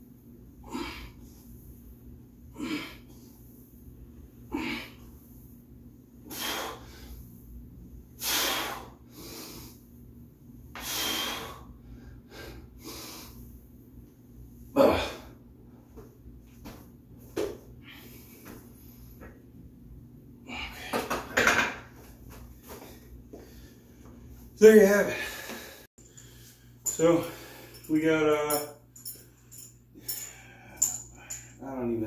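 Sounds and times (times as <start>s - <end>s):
man breathing hard: 0.6s - 1.6s, 6.2s - 7.4s, 8.2s - 9.9s, 10.7s - 13.6s, 20.4s - 21.1s, 25.1s - 27.9s, 29.1s - 31.6s.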